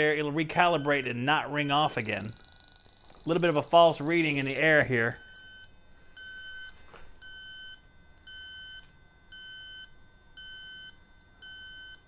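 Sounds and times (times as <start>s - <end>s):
leak detector beeping: 0.0s - 12.0s.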